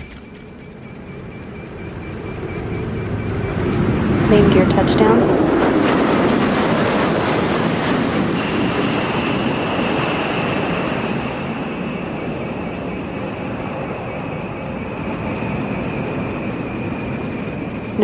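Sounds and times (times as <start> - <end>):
high steady whine: 0.0 - 5.3
aircraft rushing roar on runway: 0.0 - 18.0.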